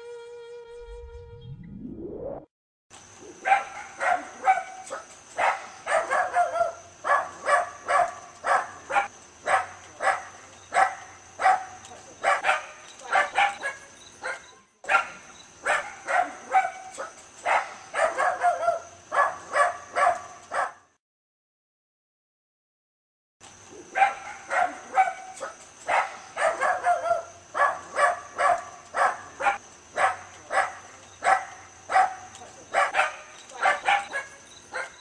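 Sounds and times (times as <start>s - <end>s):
dog barking sharply: 3.5s - 20.8s, 24.0s - 35.0s.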